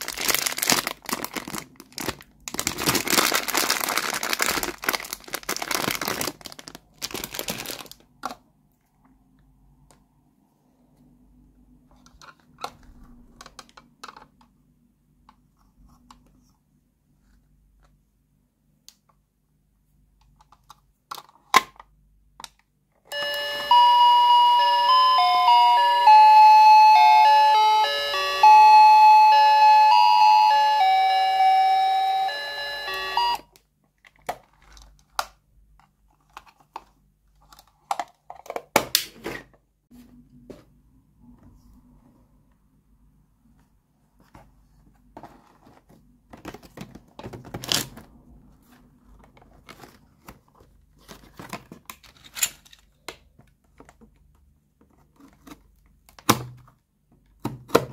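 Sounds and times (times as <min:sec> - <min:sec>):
toy beeping electronic tune: 0:23.1 - 0:33.4.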